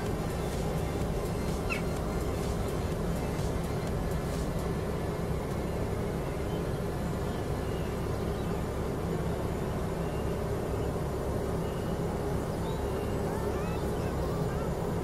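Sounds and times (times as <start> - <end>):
drone propellers humming: 0.0 - 15.0
low outdoor rumble: 0.0 - 15.0.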